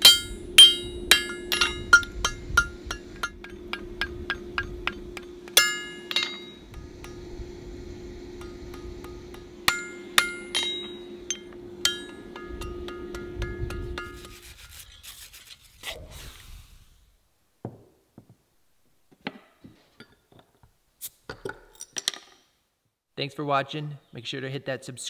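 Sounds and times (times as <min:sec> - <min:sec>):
hammer ringing on anvil: 0:00.0 - 0:07.2, 0:08.4 - 0:14.3
metal scraping: 0:00.0 - 0:16.5
steady hum: 0:00.0 - 0:17.6.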